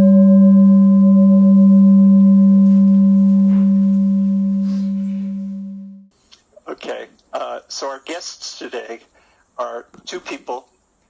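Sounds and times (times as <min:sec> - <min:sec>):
singing bowl ringing: 0:00.0 - 0:06.1.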